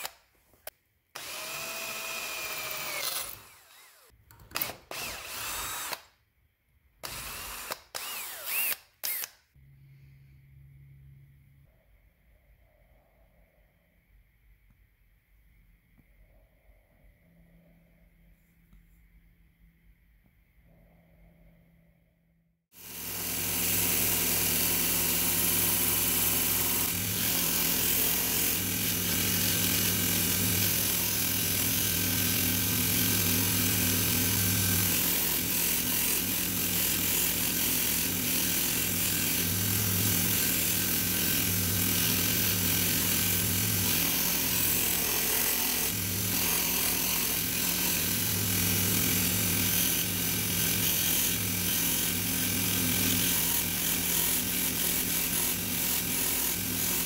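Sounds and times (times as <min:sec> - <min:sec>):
belt grinder motor hum: 0:22.8 - 0:57.0
abrasive belt grinding wood: 0:22.9 - 0:57.0.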